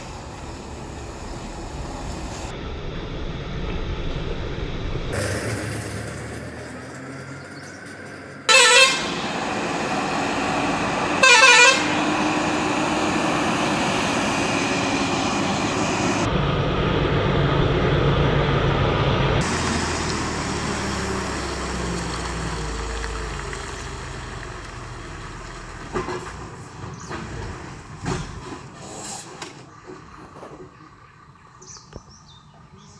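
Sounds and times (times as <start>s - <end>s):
heavy truck engine labouring: 0.0s - 31.8s
truck horn blasts: 8.5s - 9.4s, 11.1s - 12.4s.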